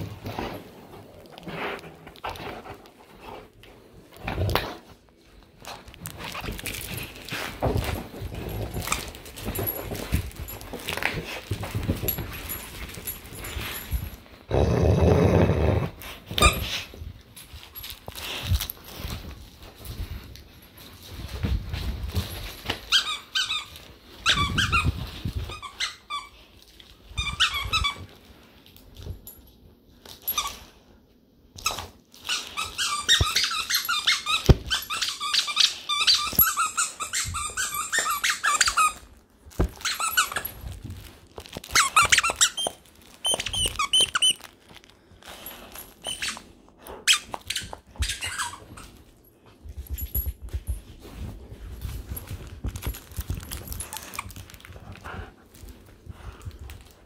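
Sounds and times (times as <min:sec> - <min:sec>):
squeaker toy squeaking: 0:32.3 - 0:39.0, 0:41.7 - 0:44.4, 0:47.1 - 0:48.9.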